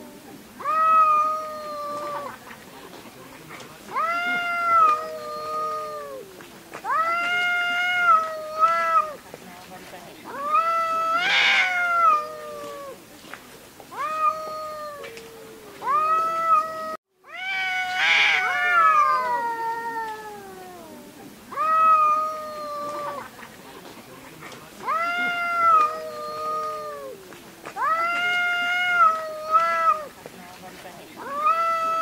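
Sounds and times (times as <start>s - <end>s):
cat yowling: 0.6s - 2.4s, 3.9s - 9.2s, 10.3s - 13.0s, 13.9s - 23.3s, 24.8s - 30.1s, 31.2s - 32.0s.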